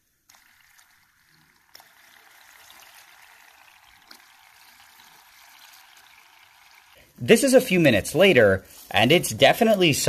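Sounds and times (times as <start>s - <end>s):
boiling nitrogen fizzing hiss: 0.0s - 10.0s.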